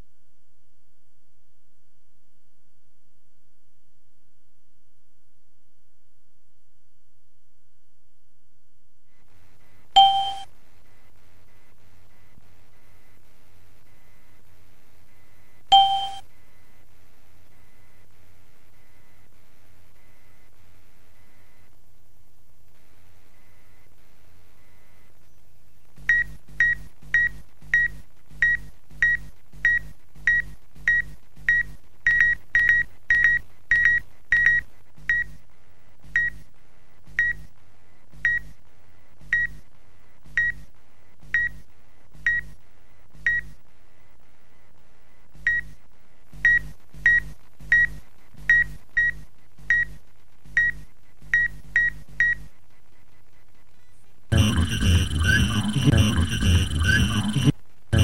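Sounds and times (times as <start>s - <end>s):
short high electronic beeps: 10.0s - 10.4s, 15.8s - 16.2s, 54.3s - 58.0s.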